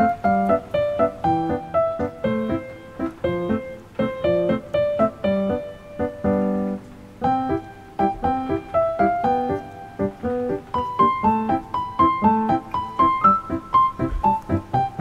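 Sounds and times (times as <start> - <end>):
light piano melody: 0.0 - 15.0.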